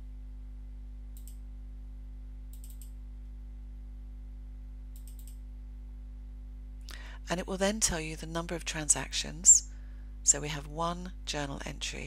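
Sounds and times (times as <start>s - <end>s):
low electrical hum: 0.0s - 12.0s
computer mouse clicks: 1.2s - 1.4s, 2.5s - 3.0s, 4.9s - 5.4s.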